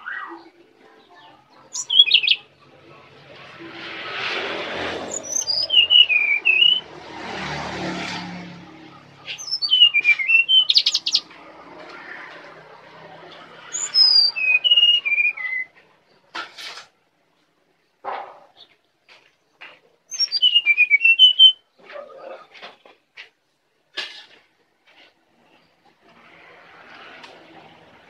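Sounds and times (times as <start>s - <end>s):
bird singing whistled notes: 1.7s - 2.4s, 5.1s - 6.9s, 9.3s - 11.2s, 13.7s - 15.7s, 20.1s - 21.6s.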